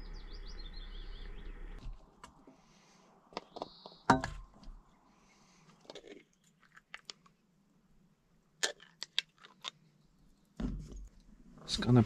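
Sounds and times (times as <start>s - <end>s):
small objects clicking and tapping: 5.8s - 7.4s, 8.6s - 9.9s.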